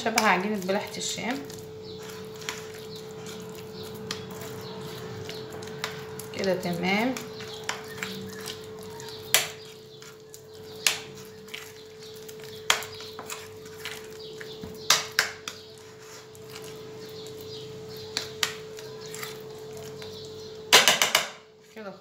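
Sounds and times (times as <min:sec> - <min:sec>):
knocks against ceramic bowl: 0:20.8 - 0:21.4.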